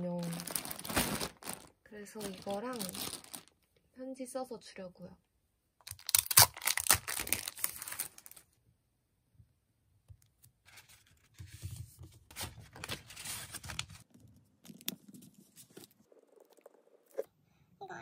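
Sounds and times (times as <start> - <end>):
paper rustling and tearing: 6.0 - 8.4, 10.7 - 15.9.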